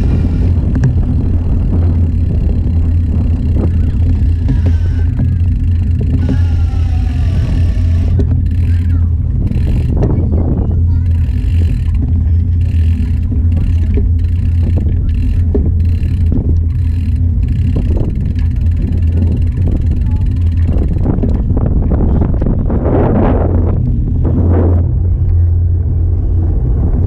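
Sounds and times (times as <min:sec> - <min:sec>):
wind and road rumble: 0:00.0 - 0:27.0
small knocks and rattles: 0:11.0 - 0:21.5.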